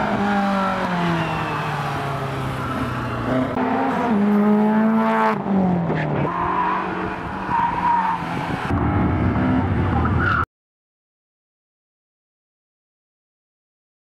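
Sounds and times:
rally car engines revving: 0:00.0 - 0:10.4.

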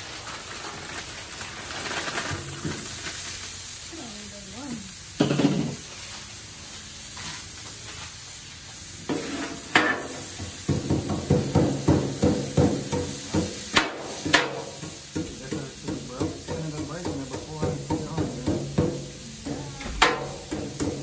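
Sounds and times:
light sizzle: 0:00.0 - 0:21.0
spatulas scraping on griddle: 0:05.2 - 0:21.0
blades knocking on steel: 0:15.2 - 0:21.0.

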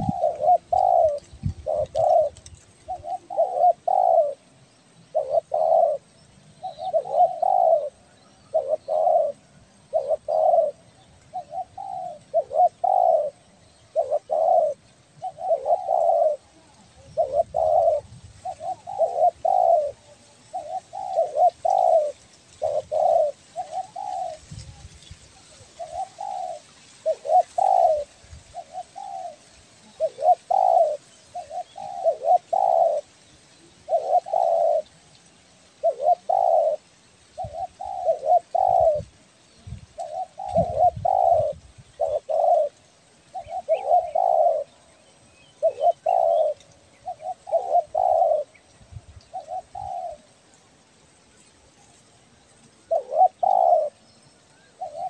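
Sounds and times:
dove cooing: 0:00.0 - 0:50.8, 0:51.6 - 0:55.0.

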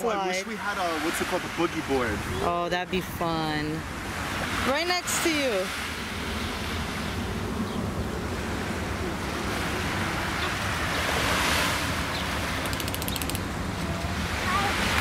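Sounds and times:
waves washing onto sand: 0:00.0 - 0:15.0
rapid high ticking: 0:12.6 - 0:13.4.

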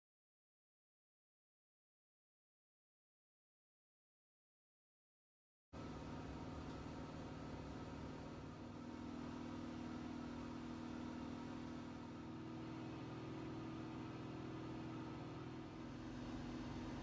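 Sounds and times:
low electrical hum with buzz: 0:05.8 - 0:17.0.

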